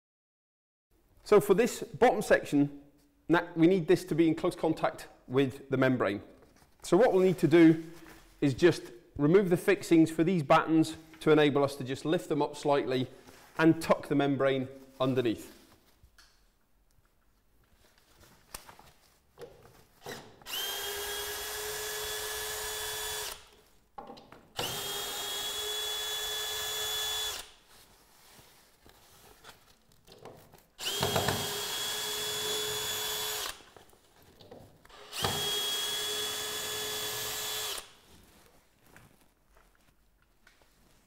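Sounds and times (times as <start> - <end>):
cordless drill whining: 20.0 - 23.5, 24.6 - 27.6, 30.8 - 33.7, 34.9 - 38.0.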